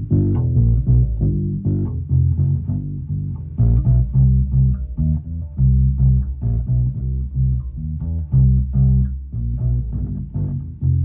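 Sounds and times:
plucked electric bass guitar: 0.0 - 11.0.

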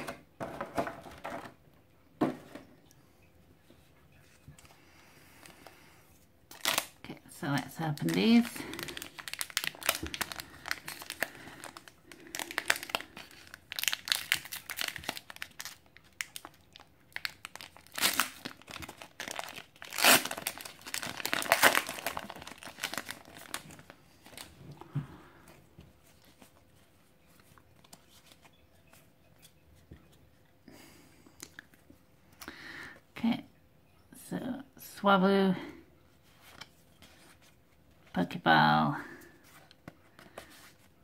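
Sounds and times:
foil wrapper tearing and crinkling: 6.5 - 7.0, 7.9 - 24.5.

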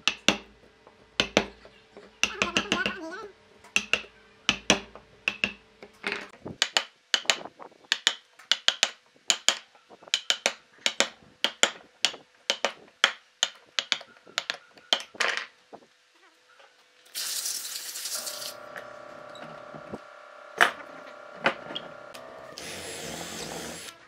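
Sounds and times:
chisel struck into wood: 1.2 - 1.5, 3.8 - 5.6
machine whine: 18.2 - 24.0
power drill boring wood: 18.2 - 24.0.

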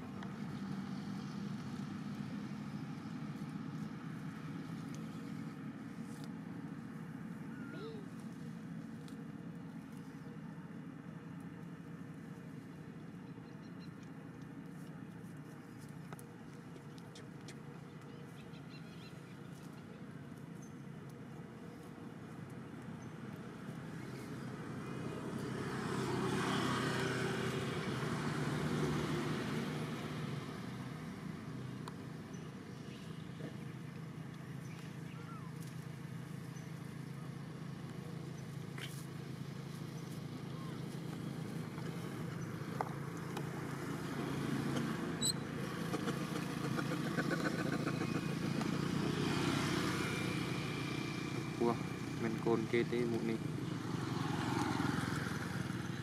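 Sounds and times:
vehicle passing by: 0.0 - 10.9, 21.4 - 56.0.

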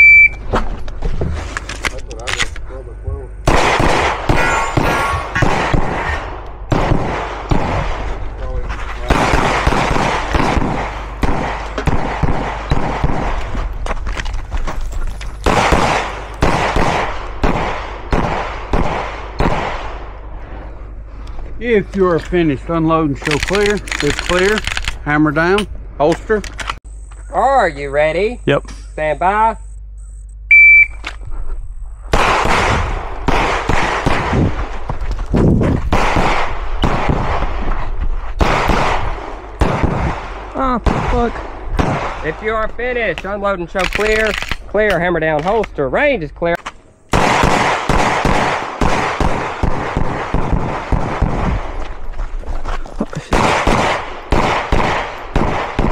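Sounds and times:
shot timer beep: 0.0 - 0.4, 29.6 - 31.0
pistol shots with echo: 3.4 - 8.1, 9.1 - 13.4, 15.4 - 19.9, 32.2 - 34.4, 35.9 - 37.6, 38.4 - 42.3, 47.1 - 51.7, 53.3 - 55.9.

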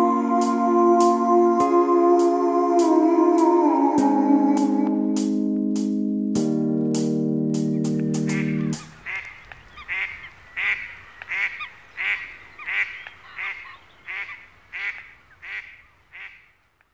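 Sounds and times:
background music chord: 0.0 - 9.0
duck quacking: 8.2 - 16.5.

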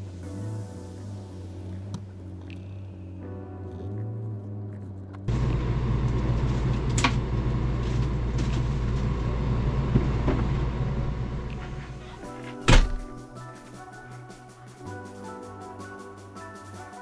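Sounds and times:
low mechanical rumble: 4.1 - 12.3.

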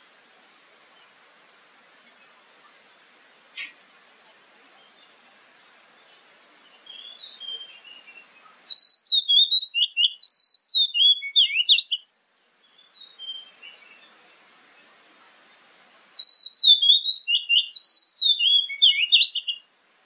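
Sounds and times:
bird whistling song: 6.4 - 14.1, 16.2 - 19.7.

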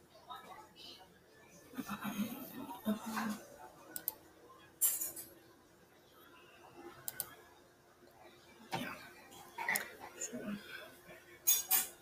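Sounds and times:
soft mouse clicks: 4.0 - 4.2, 7.0 - 7.4.

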